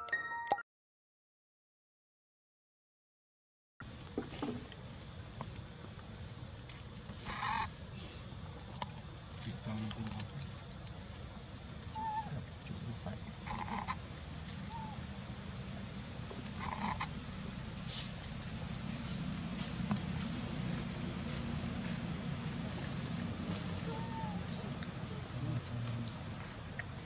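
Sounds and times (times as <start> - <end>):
high-pitched insect drone: 3.9 - 27.0
short squeaking calls: 5.0 - 8.9, 12.0 - 12.4, 14.6 - 15.0, 23.8 - 24.6.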